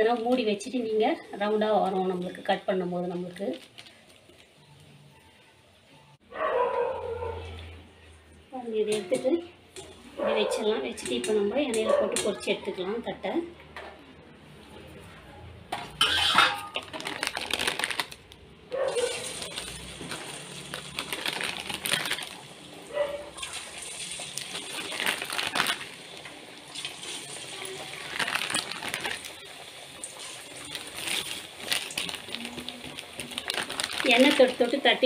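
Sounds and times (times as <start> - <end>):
dough frying in hot oil: 15.8 - 35.0.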